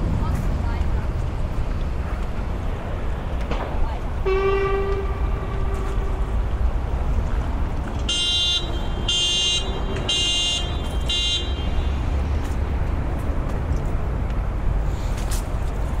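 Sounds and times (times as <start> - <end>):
low rumble: 0.0 - 7.8.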